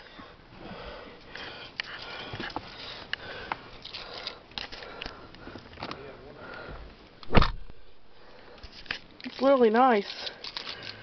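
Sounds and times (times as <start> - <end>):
camera handling rustle: 8.6 - 9.5.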